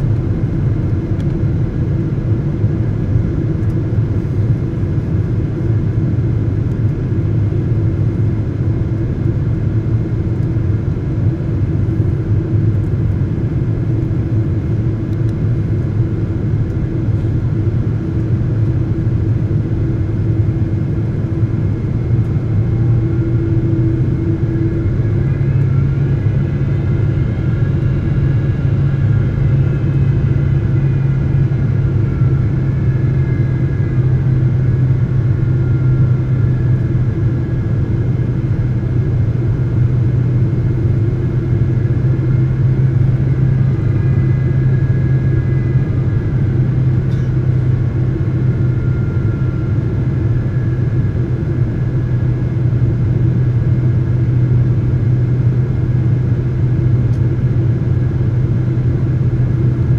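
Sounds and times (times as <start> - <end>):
airliner cabin engine drone: 0.0 - 59.9
faint whining tones: 11.5 - 55.6.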